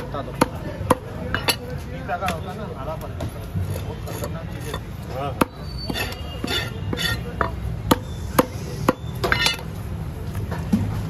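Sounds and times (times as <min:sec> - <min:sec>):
knife chopping fish on wood: 0:00.0 - 0:01.7, 0:03.7 - 0:09.6
knife scraping strokes: 0:03.6 - 0:05.0, 0:05.6 - 0:07.5.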